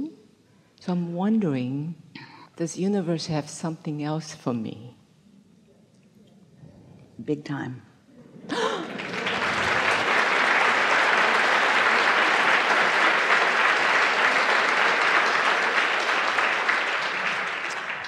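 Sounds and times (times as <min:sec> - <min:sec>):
audience applauding: 0:08.5 - 0:18.0.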